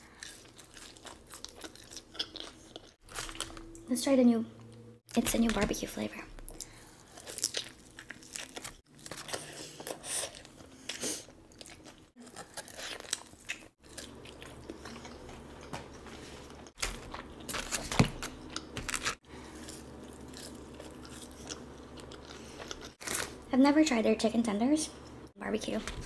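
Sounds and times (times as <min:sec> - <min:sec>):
wet chewing: 0:00.0 - 0:03.6, 0:06.4 - 0:15.7.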